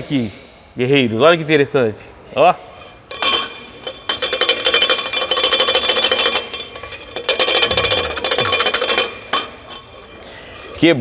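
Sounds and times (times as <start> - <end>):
shock absorber cover rattling: 3.1 - 10.8.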